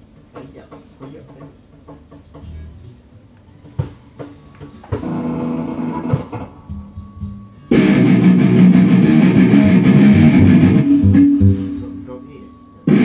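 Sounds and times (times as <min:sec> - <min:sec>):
electric guitar through amplifier: 0:04.9 - 0:13.0.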